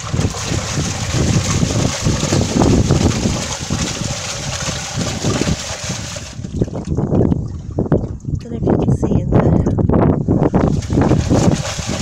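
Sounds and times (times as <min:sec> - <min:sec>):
water sloshing: 0:00.0 - 0:08.6, 0:10.6 - 0:12.0.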